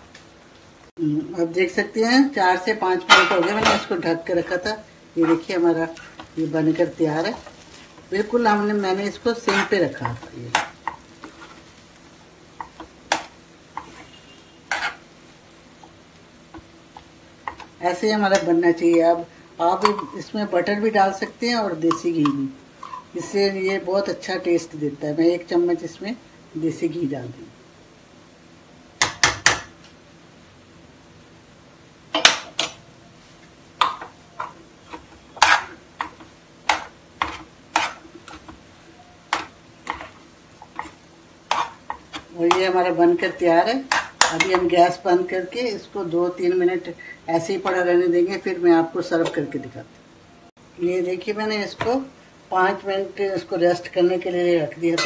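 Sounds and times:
metal spoon scraping pan: 3.0 - 6.4, 9.3 - 11.6, 12.6 - 15.0, 21.9 - 23.1, 33.9 - 38.6, 39.3 - 44.8.

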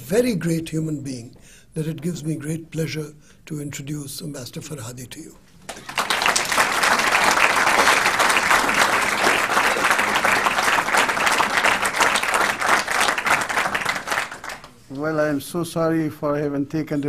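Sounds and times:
audience applauding: 5.7 - 14.8.

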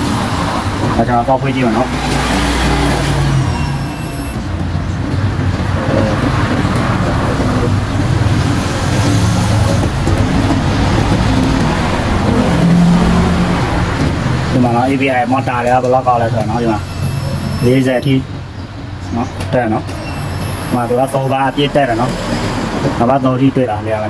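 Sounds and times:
vehicle engine running: 0.0 - 19.1.

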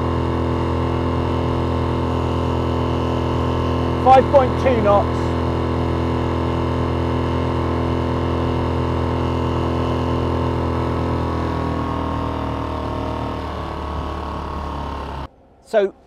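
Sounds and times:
outboard engine running: 0.0 - 15.3.

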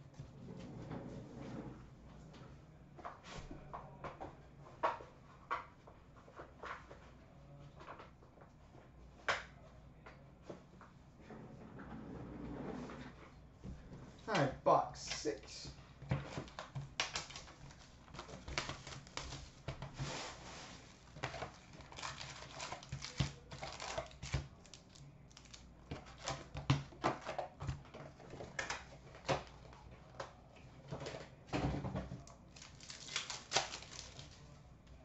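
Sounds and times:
plastic and foil packs crinkling: 16.2 - 30.4, 32.1 - 34.6.

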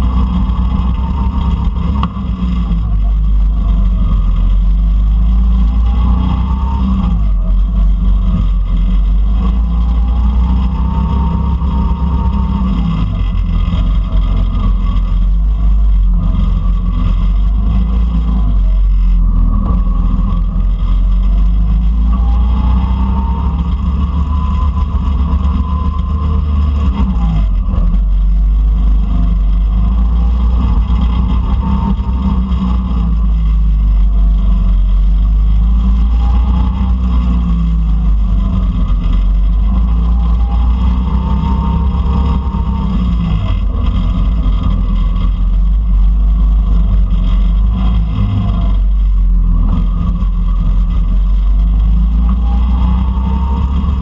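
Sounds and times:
go-kart engine revving: 0.0 - 54.0
heavy low rumble: 0.0 - 54.0.

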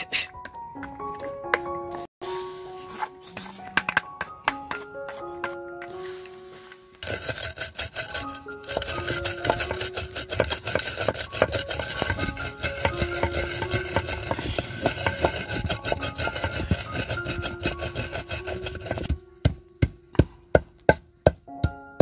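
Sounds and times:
pestle pounding in mortar: 7.0 - 22.0.

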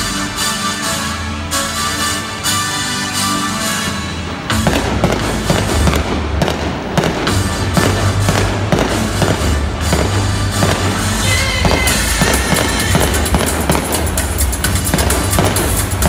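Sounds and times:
theme park music: 0.0 - 16.0
fireworks popping and banging: 4.5 - 16.0.

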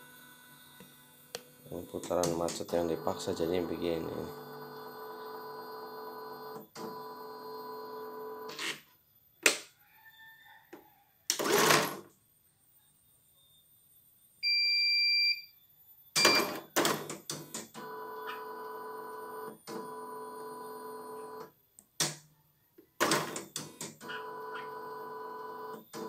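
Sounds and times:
long electronic beep: 2.7 - 4.4.

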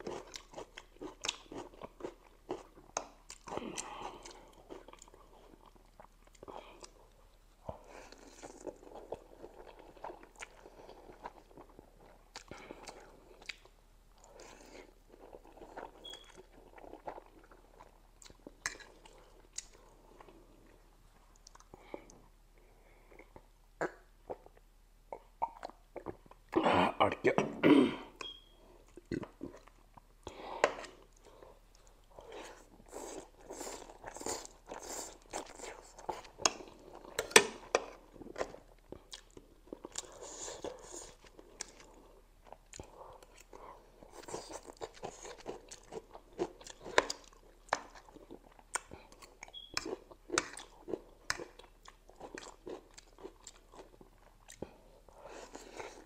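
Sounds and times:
chewing with wet lip smacks: 38.2 - 54.8.

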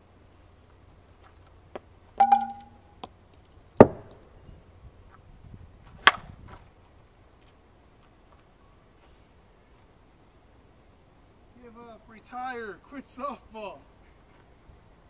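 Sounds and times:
metallic clink with ringing: 2.2 - 2.8.

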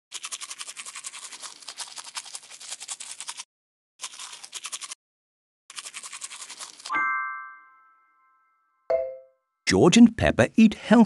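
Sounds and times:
toothbrush scrubbing teeth: 0.1 - 5.0, 5.7 - 6.9.

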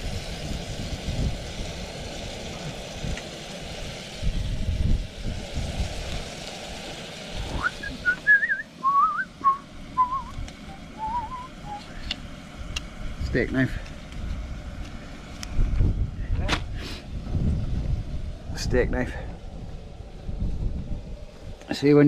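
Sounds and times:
meat sizzling in a frying pan: 0.0 - 9.2
person whistling a tune: 7.6 - 11.9.

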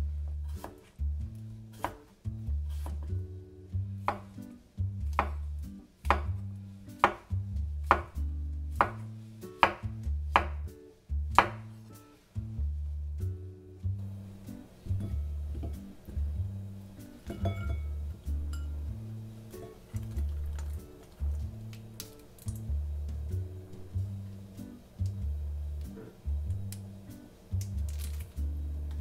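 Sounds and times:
soft background music: 0.0 - 29.0
knife slicing vegetables: 2.7 - 3.1.

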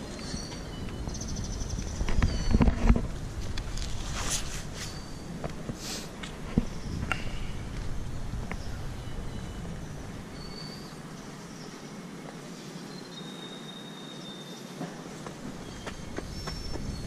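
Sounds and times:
steady background hiss: 0.0 - 17.0
footsteps on stone paving: 1.9 - 8.8, 14.8 - 17.0.

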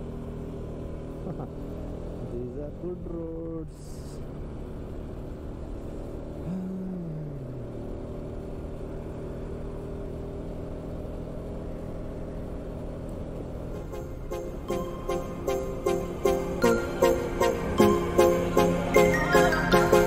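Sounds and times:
motorcycle engine running: 0.0 - 20.0
road and wind noise: 0.0 - 20.0
music: 13.8 - 20.0.

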